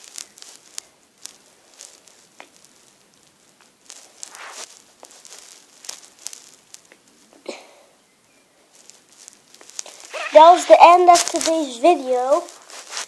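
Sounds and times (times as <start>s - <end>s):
short scrape: 4.2s - 5.5s, 9.8s - 11.5s.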